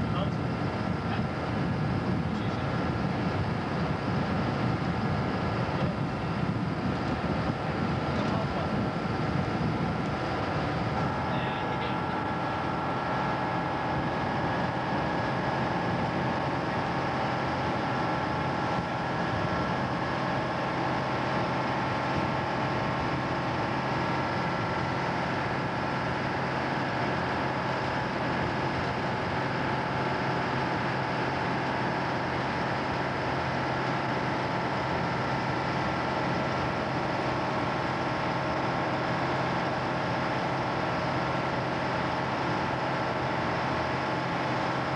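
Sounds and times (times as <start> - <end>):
boat diesel engines droning: 0.0 - 44.9.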